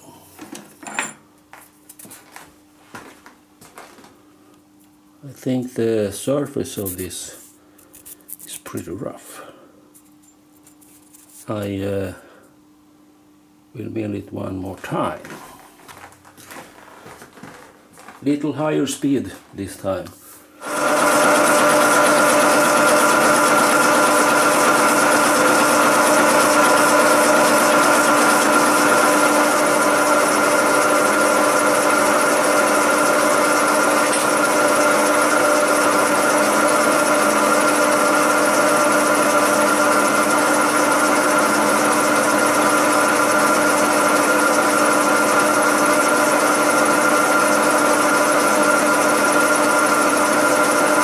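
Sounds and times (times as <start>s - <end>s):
milling machine whine: 20.6s - 51.0s.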